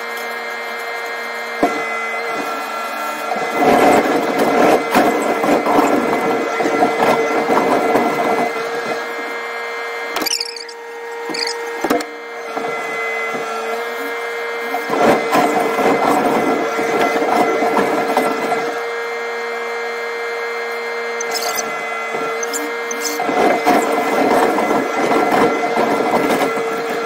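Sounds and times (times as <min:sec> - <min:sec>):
machine hum and whine: 0:08.2 - 0:14.9, 0:16.0 - 0:27.0
high squeals: 0:10.2 - 0:11.7, 0:21.2 - 0:23.3
rough scraping and rattling: 0:10.2 - 0:11.7, 0:21.2 - 0:23.4.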